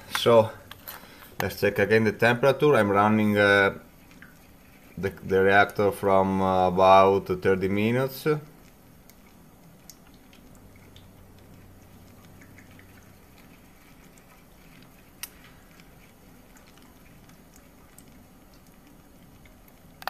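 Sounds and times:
faint low hum: 0.0s - 20.0s
small ticks and clicks: 3.8s - 5.0s, 7.7s - 20.0s.

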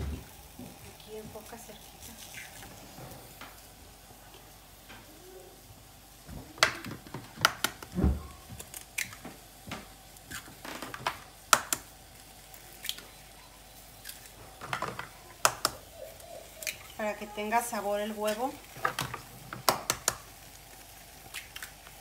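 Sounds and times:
eggs cracking against bowl: 6.6s - 11.9s, 14.0s - 17.0s, 18.2s - 20.3s, 21.2s - 22.0s.

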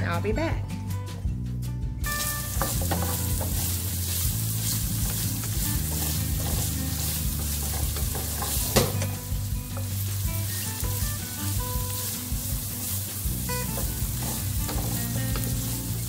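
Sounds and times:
vegetables sizzling in oil: 2.0s - 16.0s
wooden spatula scraping pan: 2.2s - 9.1s.

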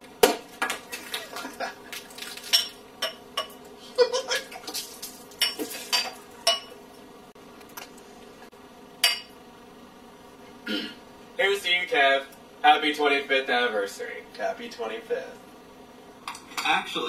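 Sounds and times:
person chuckling: 0.9s - 2.0s, 3.8s - 4.7s
glass clinking and tapping: 2.5s - 3.6s, 5.4s - 6.8s, 9.0s - 9.3s.

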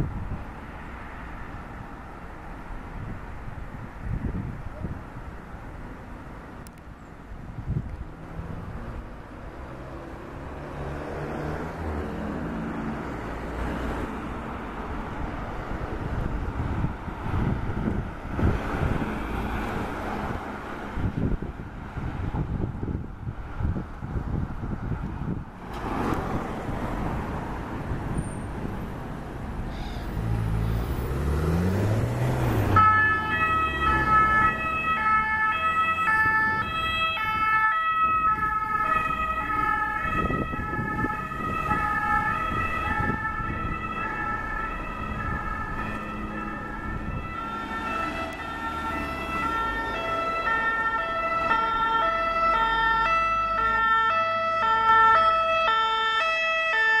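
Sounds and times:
road traffic: 0.0s - 57.0s
vehicle engine revving: 30.1s - 36.2s
ambulance two-tone siren: 32.7s - 57.0s.

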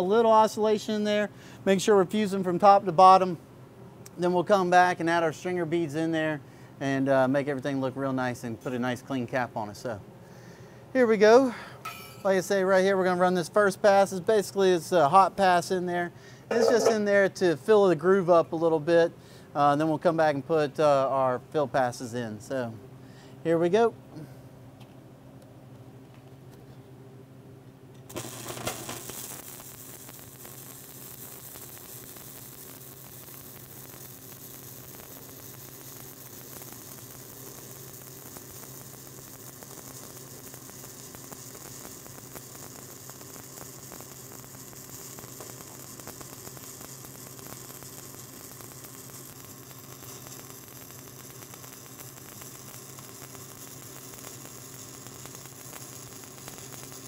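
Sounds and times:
arc welding crackle: 0.0s - 3.4s, 11.0s - 19.0s, 27.9s - 57.0s
low steady welder hum: 0.0s - 57.0s.

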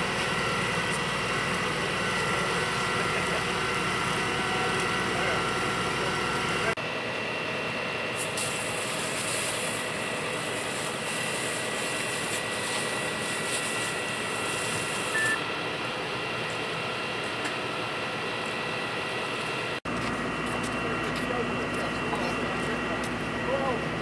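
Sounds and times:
fire engine droning: 0.0s - 24.0s.

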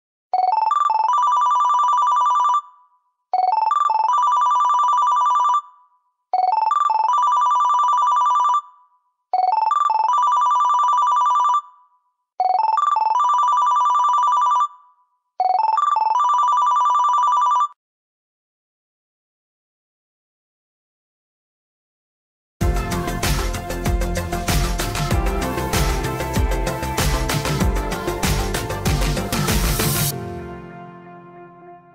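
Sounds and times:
electronic phone ringtone: 0.3s - 17.8s.

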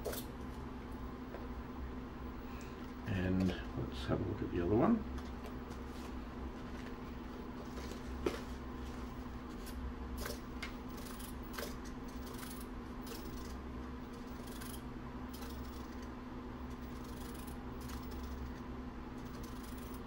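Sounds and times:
steady low hum: 0.0s - 20.0s
servo clicks and whirs: 9.6s - 16.1s, 16.7s - 18.6s, 19.2s - 20.0s.

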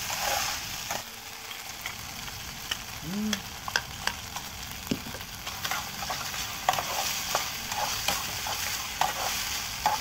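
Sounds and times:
food sizzling in a frying pan: 0.0s - 10.0s
metal spatula scraping a pan: 5.6s - 10.0s.

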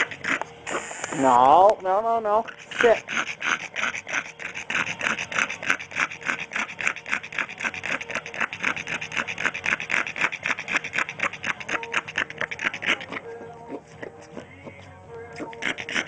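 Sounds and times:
pug making short noisy strokes: 0.0s - 1.3s.

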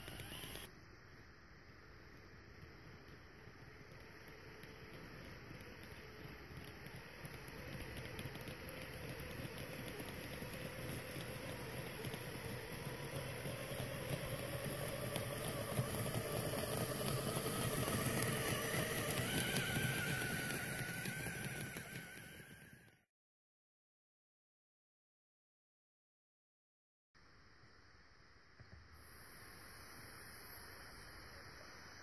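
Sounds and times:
rc car electric motor whining: 0.0s - 0.7s, 2.8s - 23.0s.

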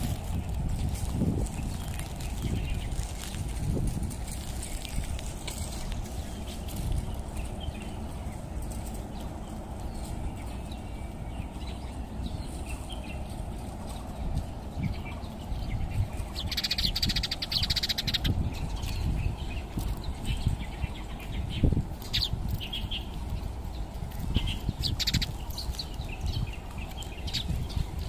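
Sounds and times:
steady low rumble: 0.0s - 28.0s
high chirps and chittering trills: 14.8s - 23.1s, 24.2s - 25.9s.

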